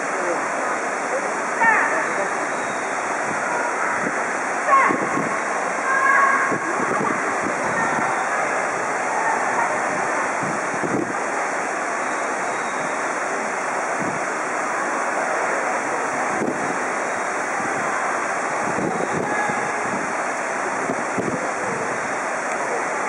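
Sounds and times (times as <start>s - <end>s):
steady rushing noise: 0.0s - 23.0s.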